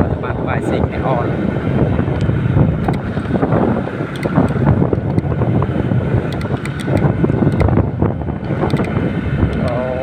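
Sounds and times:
motorcycle engine running: 0.0s - 10.0s
road noise on dirt road: 0.0s - 10.0s
wind buffeting microphone: 0.0s - 10.0s
small clicks and rattles: 6.3s - 7.8s, 8.5s - 9.8s.

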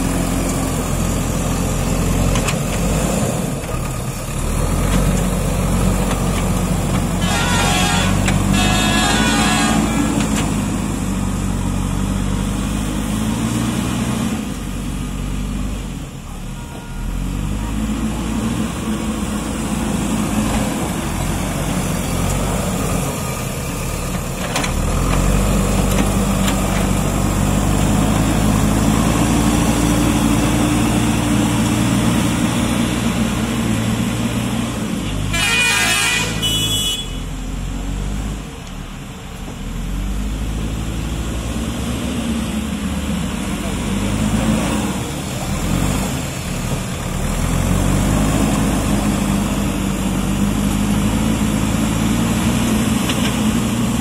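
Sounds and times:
backhoe diesel engine working: 0.0s - 54.0s.

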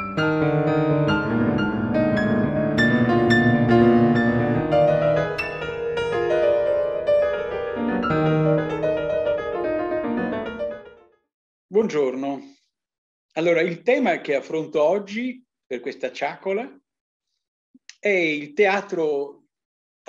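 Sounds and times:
piano music: 0.0s - 11.1s.

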